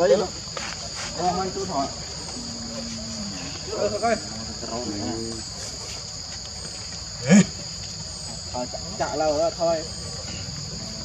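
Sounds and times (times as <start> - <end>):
high-pitched insect drone: 0.0 - 11.0.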